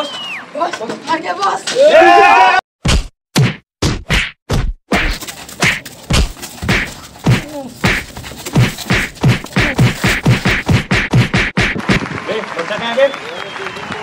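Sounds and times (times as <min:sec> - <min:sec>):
punch and slap effects: 0:02.8 - 0:12.2.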